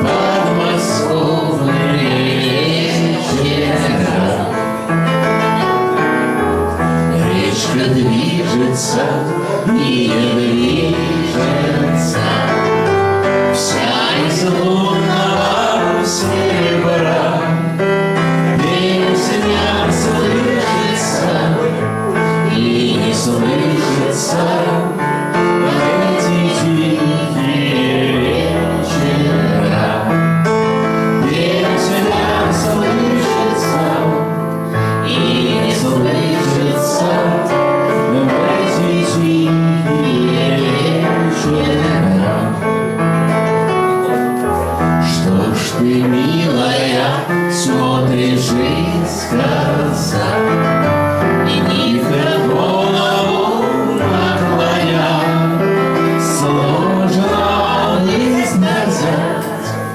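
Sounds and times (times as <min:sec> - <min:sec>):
man singing into a microphone: 0:00.0 - 0:05.2, 0:06.7 - 0:43.0, 0:44.1 - 0:59.9
electronic keyboard chords: 0:00.0 - 0:59.9.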